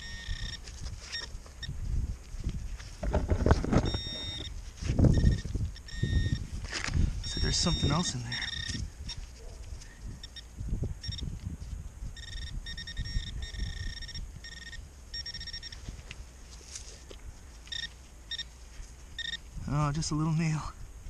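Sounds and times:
metal detector beeping: 0.0 - 1.8, 3.1 - 9.3, 10.1 - 11.4, 12.1 - 16.1, 17.6 - 19.8
knocks and rustling in soil: 0.0 - 10.2, 15.7 - 19.6.

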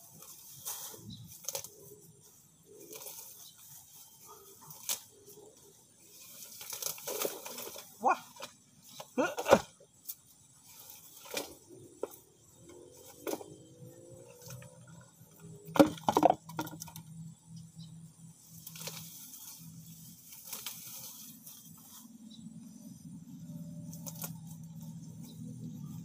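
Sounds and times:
plants rustling: 0.0 - 12.3, 18.4 - 23.0, 23.8 - 26.0.

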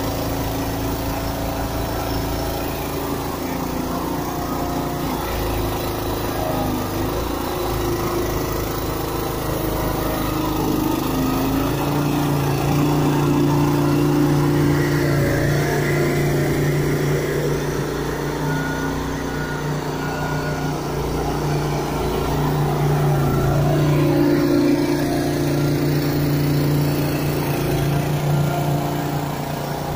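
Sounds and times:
straw blower engine hum: 0.0 - 29.9.

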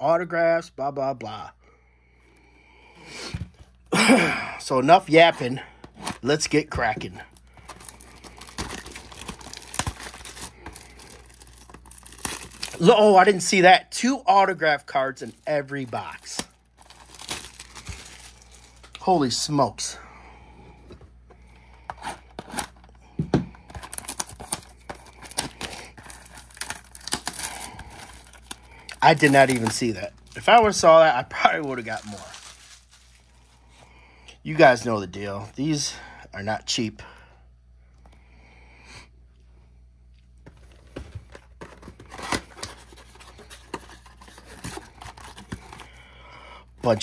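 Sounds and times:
plastic and cardboard crinkling: 5.0 - 13.4, 14.7 - 19.1, 21.9 - 33.6, 40.4 - 46.0.

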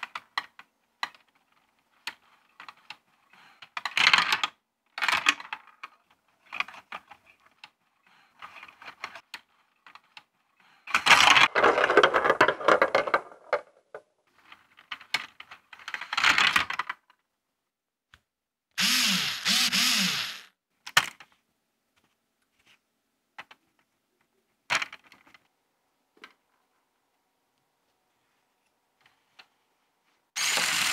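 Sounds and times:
plastic toy parts clattering: 0.0 - 17.2, 24.7 - 25.5
small electric motor whirring: 18.8 - 20.5, 30.4 - 30.9.

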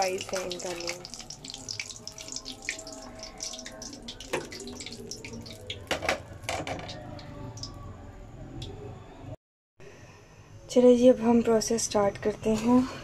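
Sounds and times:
fries sizzling in hot oil: 0.0 - 7.0.

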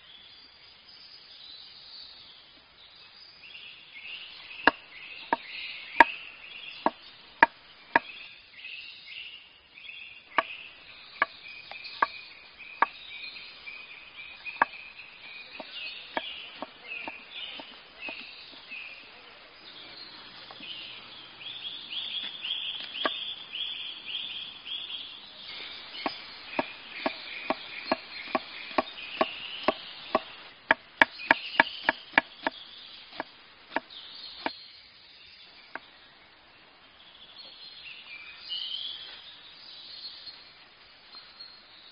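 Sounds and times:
chirping: 10.4 - 19.1, 19.8 - 33.8
knife chopping on wooden board: 26.0 - 33.8.

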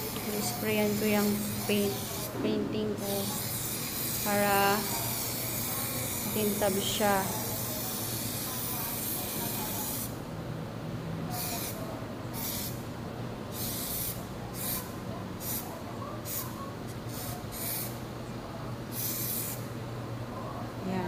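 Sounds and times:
aerosol spray bursts: 13.6 - 15.7, 16.3 - 18.0, 18.9 - 19.6.

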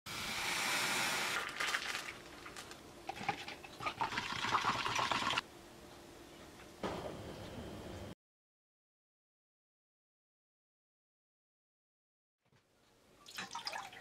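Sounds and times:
utensil whisking in plastic jug: 3.1 - 5.4.

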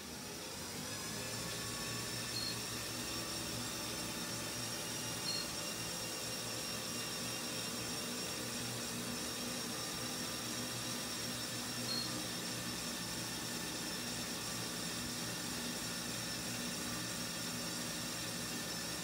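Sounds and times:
treadmill motor running: 0.0 - 19.0
short high beep: 2.4 - 2.6.

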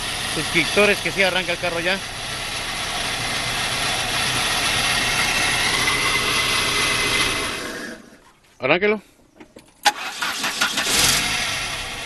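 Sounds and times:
car engine running: 0.0 - 8.2, 9.9 - 12.0.

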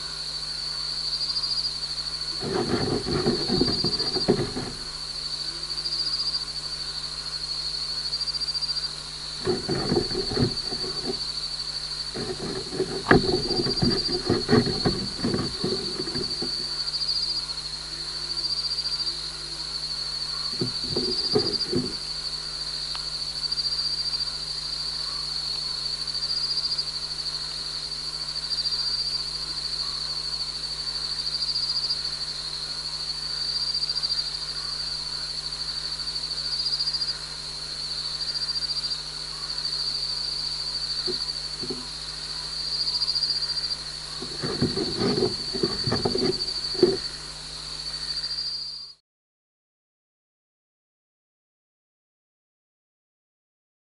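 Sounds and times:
insects chirping: 0.0 - 49.0
gecko feet scratching on mesh: 2.3 - 5.0, 9.4 - 11.3, 12.1 - 16.8, 20.5 - 22.0, 41.1 - 41.9, 44.2 - 47.2.

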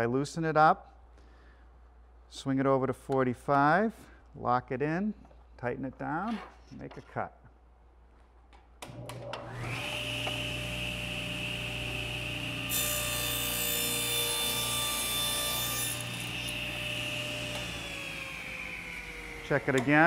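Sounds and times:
table saw whining: 8.9 - 20.0
saw blade cutting board: 9.4 - 20.0.

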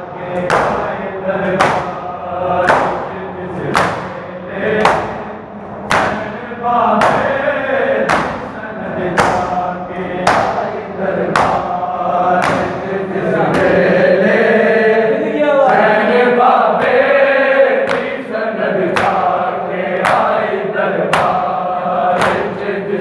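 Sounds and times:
men chanting in unison: 0.0 - 23.0
hands slapping bare chests: 2.6 - 3.0, 3.7 - 4.1, 5.9 - 6.2, 10.2 - 10.6, 12.4 - 12.8.

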